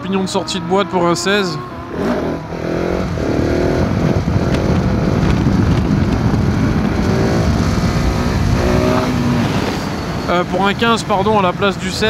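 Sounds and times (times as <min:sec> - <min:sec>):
wind rush: 0:00.6 - 0:12.0
motorcycle engine revving hard: 0:01.6 - 0:10.3.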